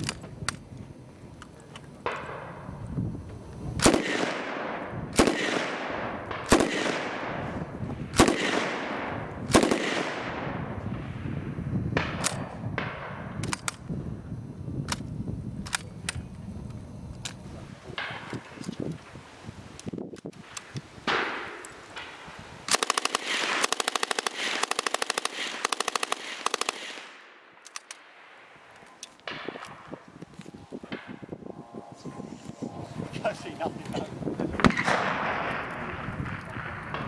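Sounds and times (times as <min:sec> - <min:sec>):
rifle shots ringing: 0:03.8 - 0:11.0, 0:20.5 - 0:30.0, 0:34.6 - 0:37.0
faint thin cracks: 0:24.4 - 0:28.1.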